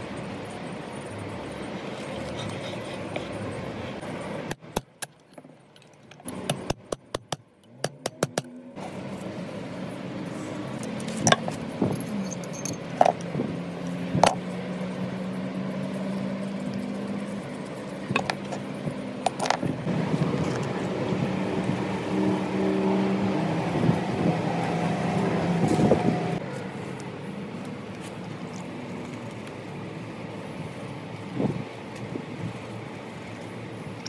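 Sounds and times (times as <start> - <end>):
metal clinks and clicks: 10.6 - 14.5, 16.0 - 19.6.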